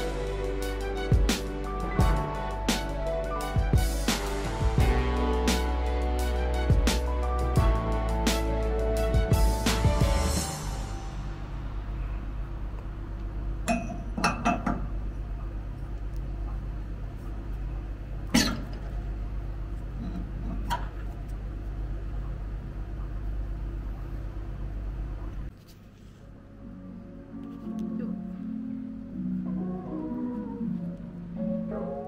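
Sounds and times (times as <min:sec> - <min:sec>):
low hum: 0:00.0 - 0:20.6.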